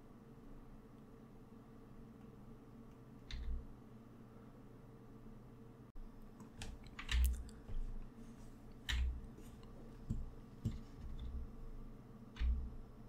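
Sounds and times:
keyboard keys clicking: 3.3 - 3.6, 6.4 - 7.8.

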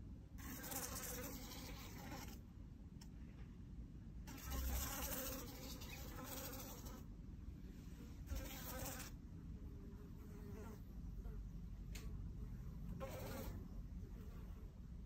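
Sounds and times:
fly buzzing: 4.3 - 7.0.

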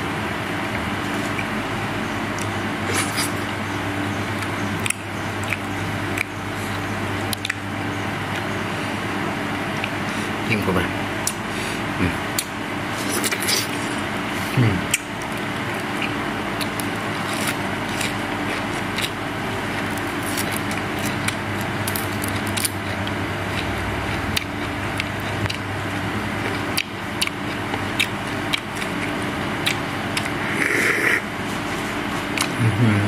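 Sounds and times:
steady hum and hiss: 0.0 - 33.0
chewing clicks: 4.1 - 7.6, 9.8 - 10.0, 11.2 - 11.4, 14.9 - 30.8, 32.3 - 32.6.

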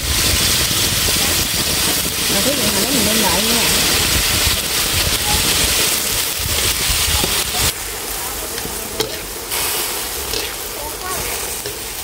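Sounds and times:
vegetables sizzling in a wok: 0.0 - 12.0.

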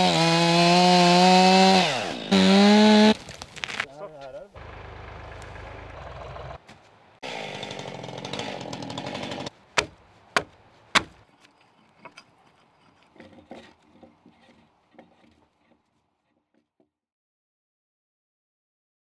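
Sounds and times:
small engine running: 4.6 - 6.6
axe striking timber: 8.3 - 11.2.

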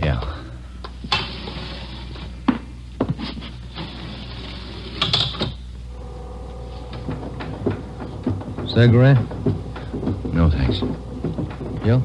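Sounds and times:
elevator mechanical hum: 0.0 - 12.0
elevator clicks and clanks: 6.8 - 12.0.

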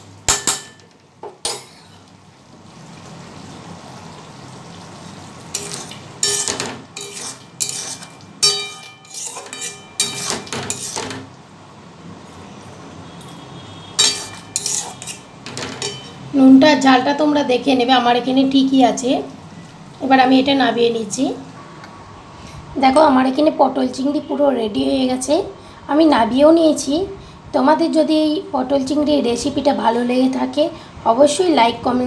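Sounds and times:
curry simmering hiss: 1.7 - 8.4
metal spatula scraping pan: 5.5 - 11.3, 14.0 - 16.3.

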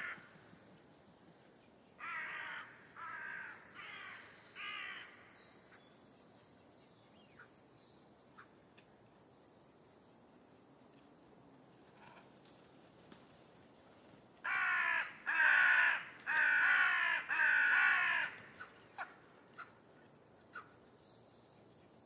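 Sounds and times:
crow cawing: 2.0 - 5.2, 14.4 - 19.2.

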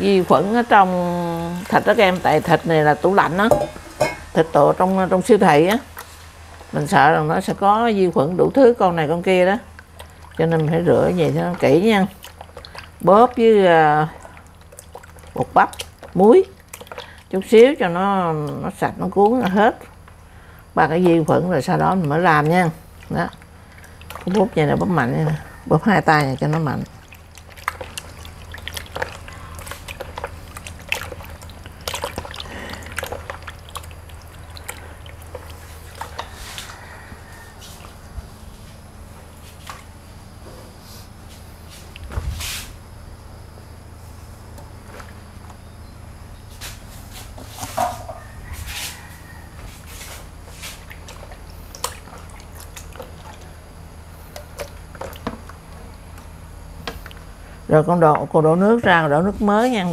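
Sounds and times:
steady low hum: 0.0 - 59.9
wet squelches and splashes: 9.1 - 38.6, 39.3 - 40.0, 44.7 - 45.7, 48.4 - 57.6.

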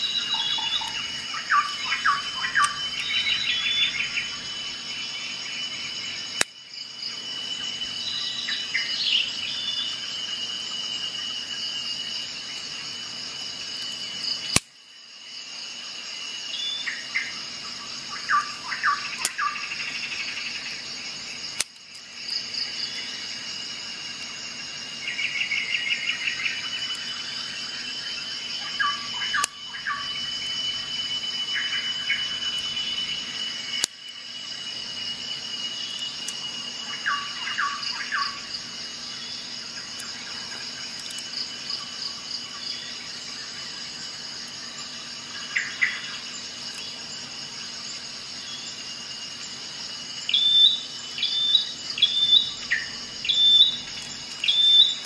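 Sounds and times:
birds chirping and trilling: 0.0 - 6.3, 7.3 - 11.2, 25.0 - 34.6, 35.2 - 47.2, 50.2 - 55.0.

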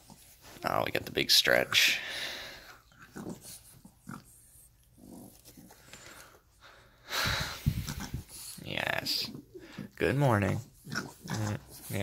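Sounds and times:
puppy grunting and snorting: 2.8 - 5.8, 9.2 - 12.0.

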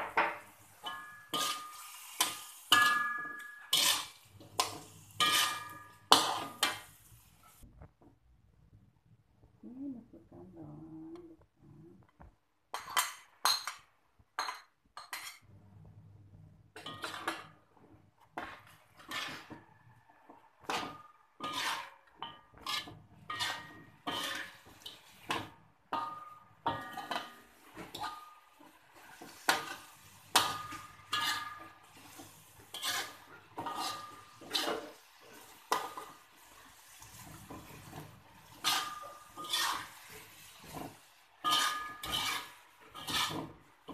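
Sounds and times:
metal spatula scraping wok: 0.4 - 7.6, 16.8 - 17.6, 18.4 - 19.8, 20.5 - 43.9.

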